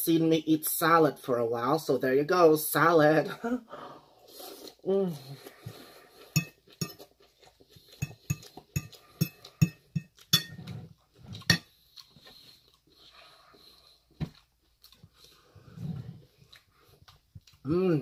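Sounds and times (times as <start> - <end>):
chewing crisp lettuce: 4.3 - 9.6, 10.2 - 18.0.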